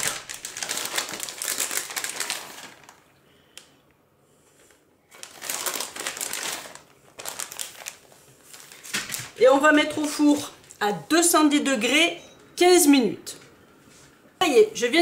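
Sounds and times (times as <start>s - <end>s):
plastic packet crinkling: 0.0s - 3.7s, 4.6s - 10.8s.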